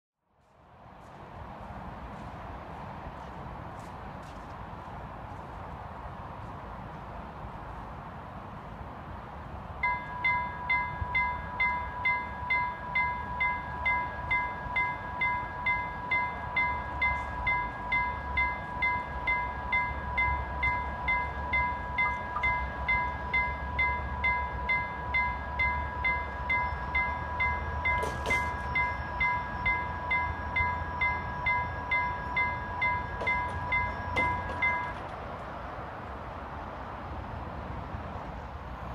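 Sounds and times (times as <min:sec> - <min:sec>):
level crossing warning bell ringing: 0:09.8 - 0:35.2.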